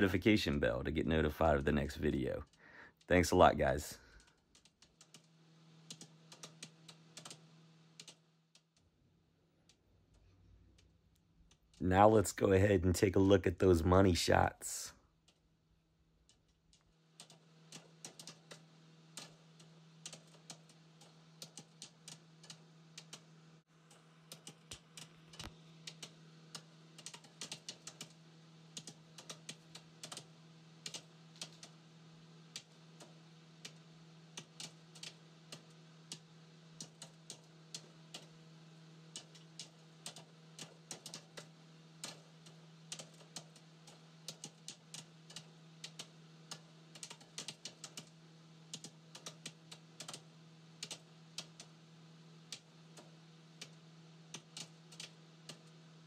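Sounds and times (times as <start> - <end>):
steady low hum: 0.0 - 56.0
typing on computer keyboard: 4.1 - 7.4, 8.0 - 8.8, 16.2 - 23.3, 23.9 - 31.8, 32.5 - 38.3, 39.1 - 48.1, 48.7 - 51.7, 52.5 - 55.7.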